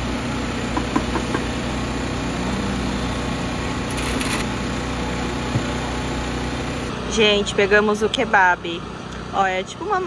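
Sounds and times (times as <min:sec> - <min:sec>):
machine hum: 0:00.0 - 0:07.8.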